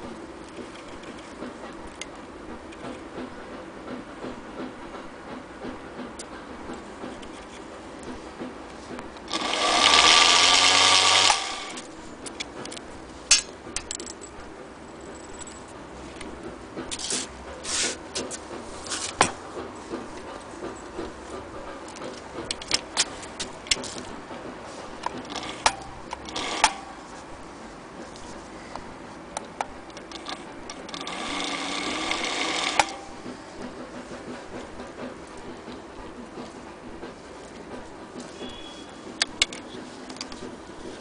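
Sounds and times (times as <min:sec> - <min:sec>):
sharp clicks and knocks: 0:00.0 - 0:41.0
sewing machine running: 0:09.3 - 0:11.9, 0:25.1 - 0:26.8, 0:30.1 - 0:33.2.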